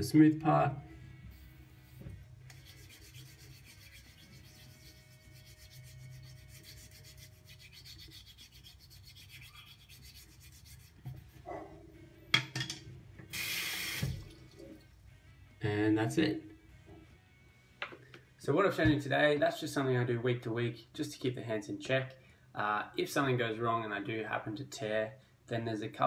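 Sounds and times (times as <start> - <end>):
sandpaper stick rasping on skin: 2.4 - 11.4
running tap water: 13.3 - 14.8.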